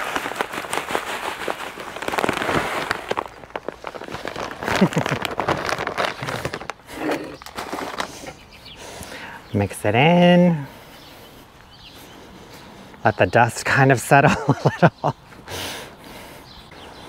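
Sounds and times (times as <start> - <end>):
fertilizer pouring onto soil: 0.0 - 8.3
plastic bag crinkling: 0.0 - 8.4.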